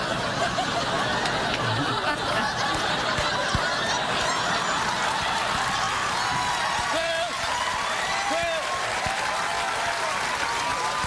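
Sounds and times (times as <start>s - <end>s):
audience laughing: 0.0s - 7.5s.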